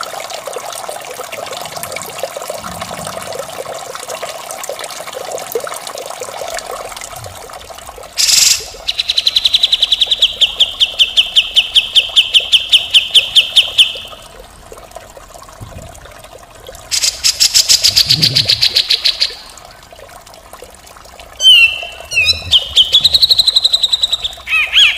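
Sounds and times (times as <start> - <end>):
water trickling: 0.0 - 24.9
bird calling harshly: 21.4 - 24.9
bird trill: 21.4 - 24.9.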